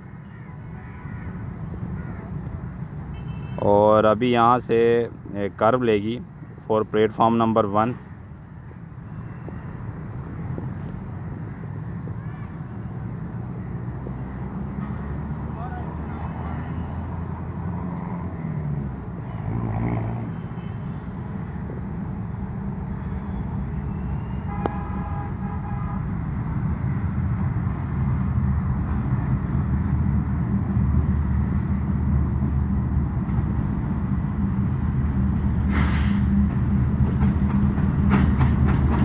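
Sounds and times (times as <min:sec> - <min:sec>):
train horn: 0:24.5 - 0:26.0
brief hiss: 0:35.7 - 0:36.2.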